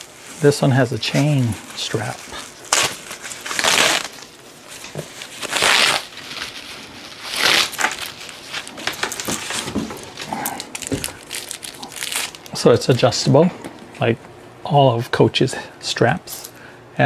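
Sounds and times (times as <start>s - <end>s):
plastic wrapping crinkling: 0.0s - 13.2s.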